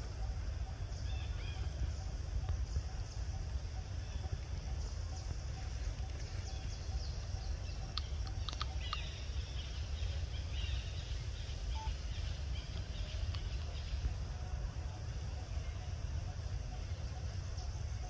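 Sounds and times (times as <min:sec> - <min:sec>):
faint bird chirps: 0:00.0 - 0:18.0
steady low rumble: 0:00.0 - 0:18.0
sharp clicks: 0:07.9 - 0:09.2.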